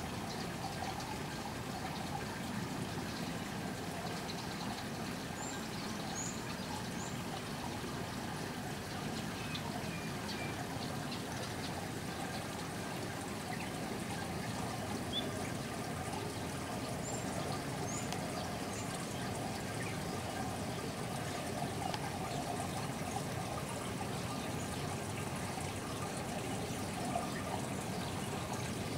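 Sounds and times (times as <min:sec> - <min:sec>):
trickling running water: 0:00.0 - 0:28.9.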